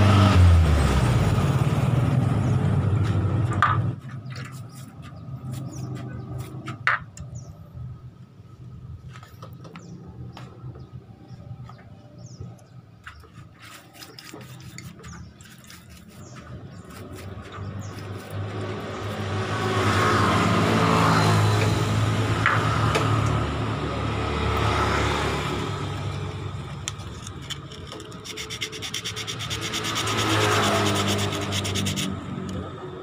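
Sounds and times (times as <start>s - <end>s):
brush scrubbing metal parts: 13.0s - 19.2s, 26.9s - 32.2s.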